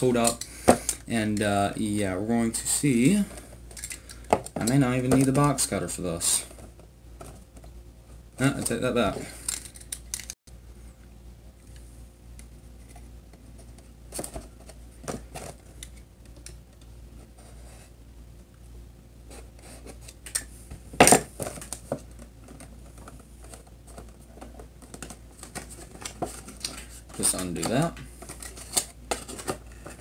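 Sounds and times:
cardboard and plastic packaging rustling: 2.5s - 7.8s, 12.8s - 16.0s, 20.7s - 30.0s.

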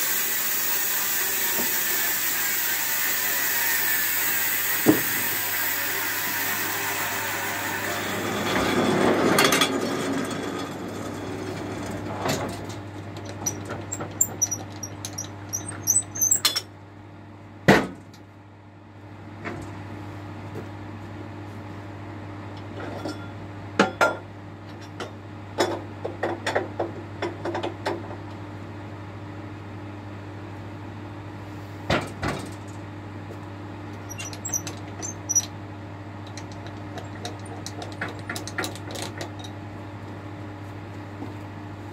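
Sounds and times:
band saw cutting log: 0.0s - 9.4s.

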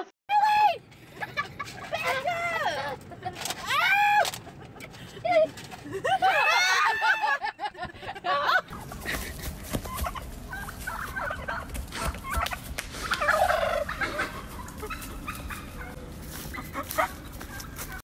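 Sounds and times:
outdoor background noise: 0.0s - 18.0s
turkey gobbling: 8.7s - 18.0s.

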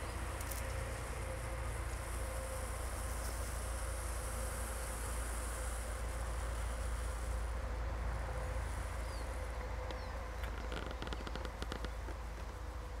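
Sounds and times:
grasshoppers buzzing: 0.0s - 13.0s
quick ticks: 9.8s - 12.6s.

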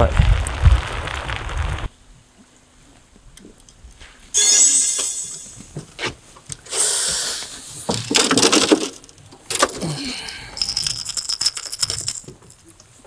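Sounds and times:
short high whine: 4.4s - 5.8s
metal hooks clinking: 9.5s - 12.6s.

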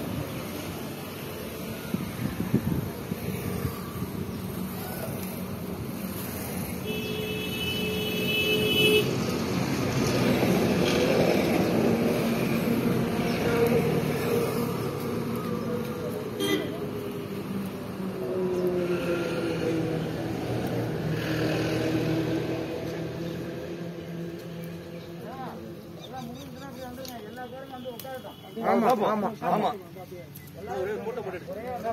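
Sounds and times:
road traffic passing: 0.0s - 31.9s
vehicle horn: 6.8s - 9.2s, 16.4s - 16.8s.

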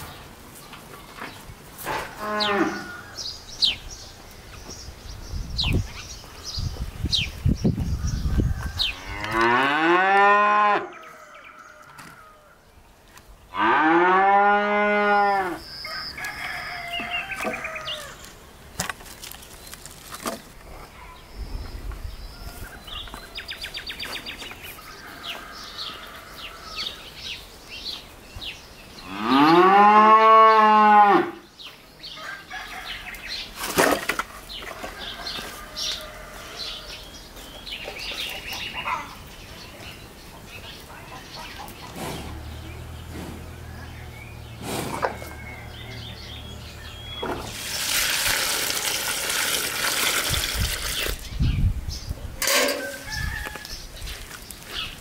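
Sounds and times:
cow mooing: 2.2s - 3.0s, 8.9s - 11.1s, 13.5s - 15.6s.

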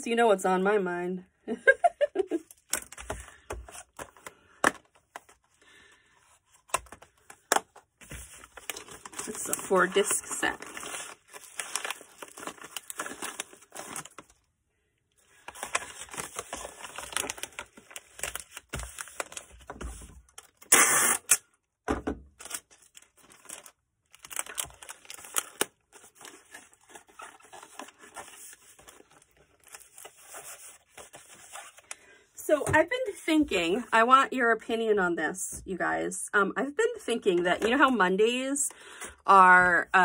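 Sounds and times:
packing materials rustling: 2.4s - 14.5s, 15.2s - 21.4s, 22.3s - 32.0s
loud tearing: 20.6s - 21.5s.

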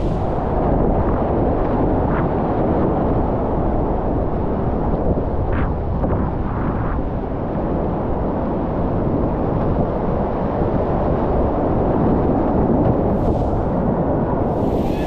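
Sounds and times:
wind on microphone: 0.0s - 15.0s.

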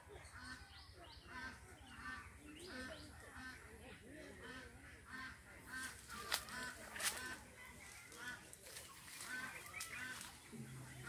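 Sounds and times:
bird calling: 8.8s - 11.0s.

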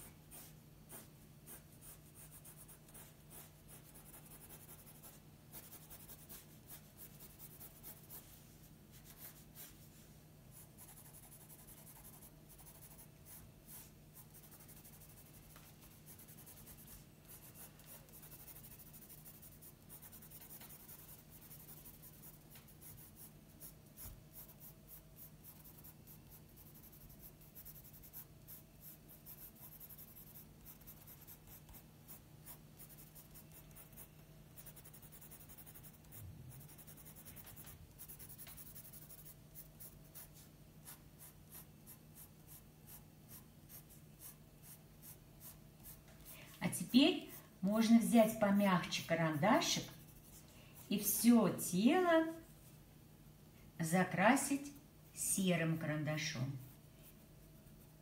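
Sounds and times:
pencil scratching on paper: 0.0s - 8.4s, 9.0s - 9.8s, 10.6s - 46.0s.

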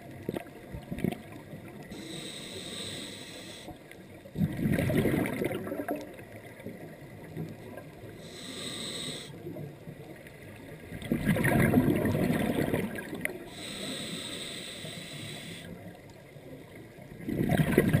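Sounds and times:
regulator hiss on inhale: 1.9s - 4.0s, 8.2s - 9.6s, 13.4s - 15.9s
exhaled bubbles bubbling: 4.3s - 7.9s, 10.8s - 13.5s, 17.1s - 18.0s.

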